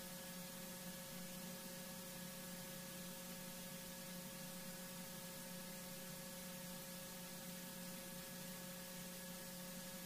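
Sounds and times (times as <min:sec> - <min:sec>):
electrical hum: 0:00.0 - 0:10.0.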